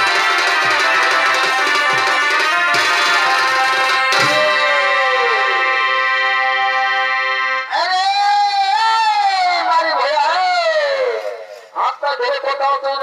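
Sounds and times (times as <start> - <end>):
drum strokes: 0.0 - 5.4
reedy wind instrument melody: 0.0 - 8.2.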